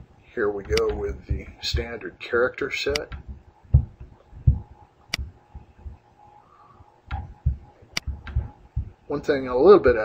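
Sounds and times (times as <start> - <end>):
soft low thumps: 0.0 - 2.1, 2.9 - 6.3, 7.0 - 10.0
computer mouse click: 7.9 - 8.4.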